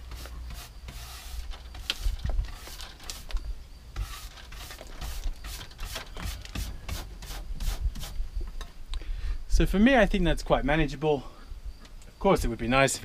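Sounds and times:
brush sweeping wooden floorboards: 0:00.0 - 0:03.3, 0:04.0 - 0:08.2.

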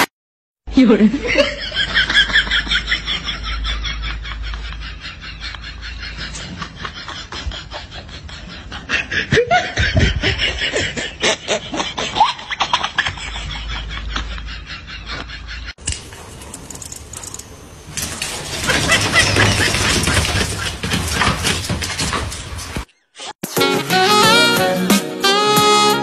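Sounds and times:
person giggling: 0:03.0 - 0:15.7.

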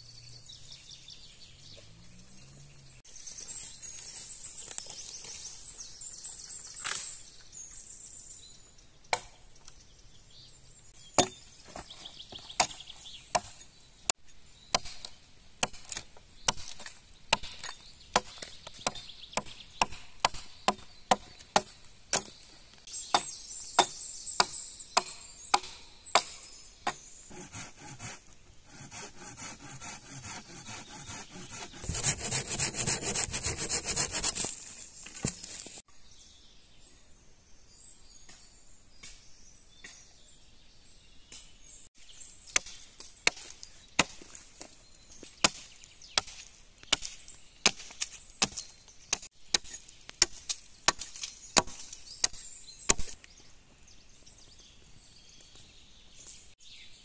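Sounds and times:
axe chopping wood: 0:09.1 - 0:09.4, 0:11.2 - 0:13.6, 0:14.7 - 0:22.4, 0:23.1 - 0:34.3, 0:42.5 - 0:44.4, 0:45.4 - 0:53.2
rasping strokes on wood: 0:27.3 - 0:34.5.

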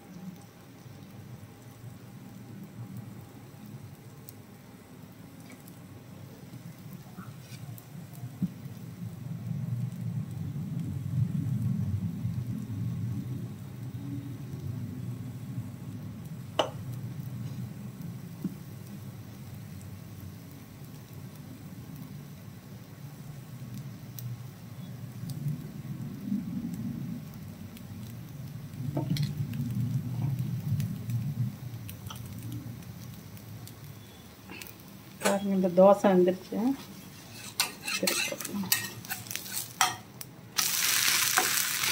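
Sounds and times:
batter sizzling in a pan: 0:00.0 - 0:41.9
ladle tapping a pan: 0:16.6 - 0:16.8
low rumble: 0:25.1 - 0:33.5.

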